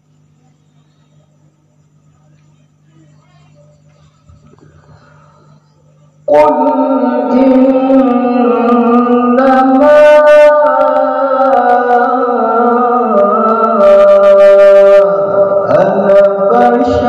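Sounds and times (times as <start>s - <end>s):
man reciting melodically: 6.3s - 17.0s.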